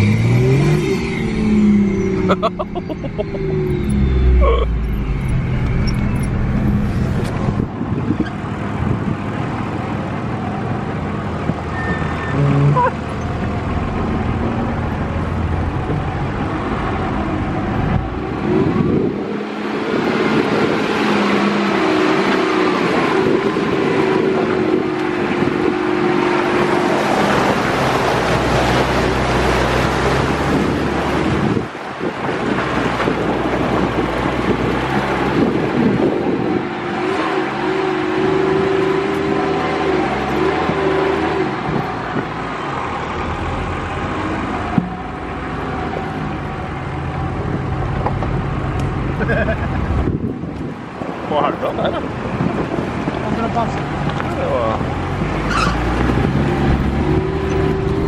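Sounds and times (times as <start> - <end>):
off-road vehicle engine running: 0.0 - 58.0
wind on microphone: 4.8 - 9.4, 17.5 - 39.6, 49.8 - 54.2.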